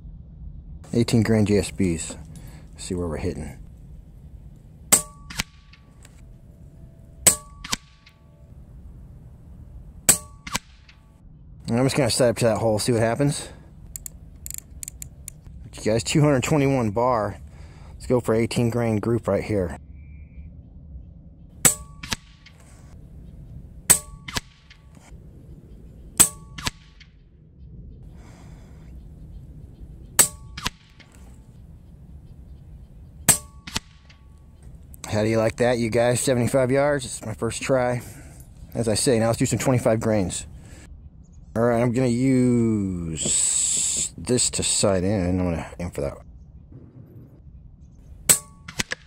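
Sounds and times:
pellet striking target: 4.9s - 5.8s, 7.2s - 8.1s, 10.1s - 11.0s, 21.6s - 22.6s, 23.9s - 24.8s, 33.3s - 34.2s
air rifle shot crack: 7.2s - 8.2s, 10.1s - 11.0s, 23.9s - 25.1s, 26.2s - 27.2s, 30.2s - 31.3s, 33.3s - 34.2s.

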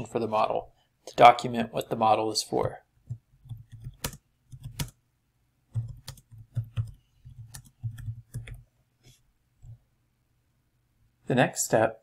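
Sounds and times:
computer keyboard typing: 3.1s - 5.0s, 5.7s - 8.6s.

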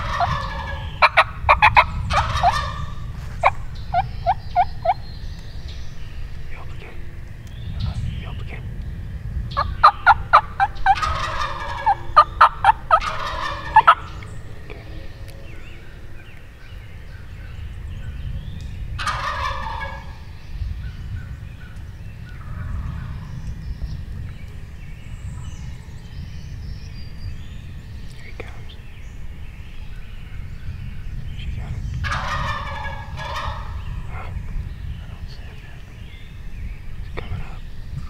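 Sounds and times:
turkey gobbling: 0.0s - 5.0s, 9.6s - 14.8s, 19.0s - 20.2s, 32.0s - 34.4s.

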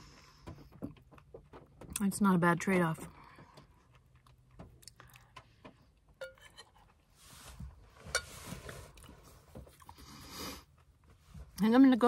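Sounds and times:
metal spoon scraping a bowl: 6.2s - 6.8s.

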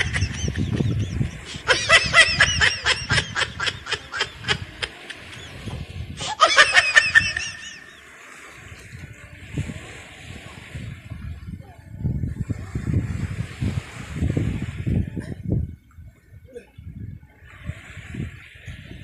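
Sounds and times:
people giggling: 0.0s - 8.0s.

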